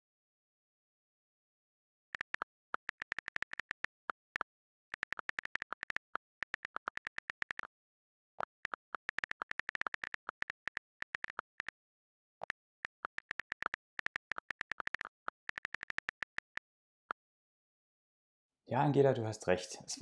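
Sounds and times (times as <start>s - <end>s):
phone keyboard clicks: 12.8s - 16.6s.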